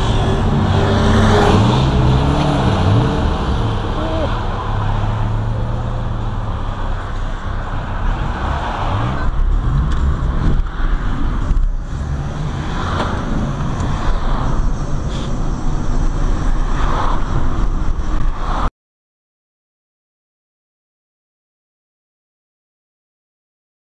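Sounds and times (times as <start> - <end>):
car engine and tyre rumble: 0.0 - 18.7
passing traffic: 0.0 - 18.7.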